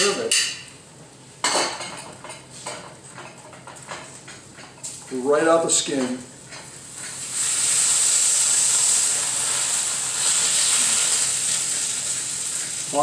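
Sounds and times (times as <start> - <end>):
drippings sizzling in a pan: 5.7 - 13.0.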